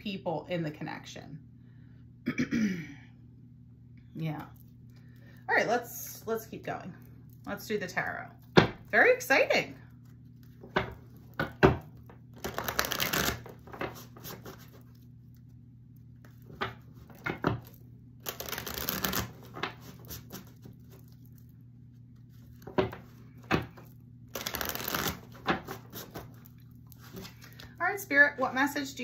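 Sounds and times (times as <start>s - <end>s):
cards shuffling: 9.9s - 15.5s, 16.1s - 27.8s
cards tapping: 10.5s - 14.8s, 16.3s - 20.5s, 22.5s - 26.3s.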